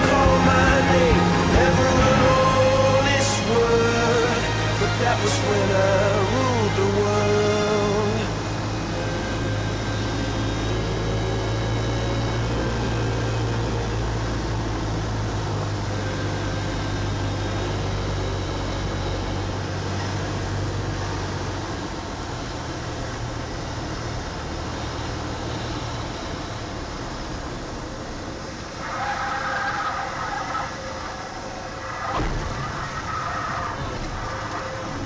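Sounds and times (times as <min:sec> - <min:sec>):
light aircraft engine droning: 0:00.0 - 0:35.0.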